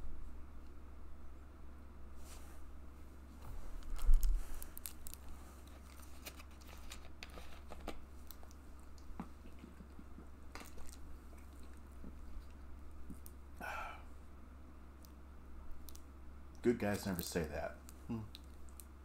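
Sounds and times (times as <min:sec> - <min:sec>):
plastic water bottle crinkling: 0:03.9 - 0:08.6.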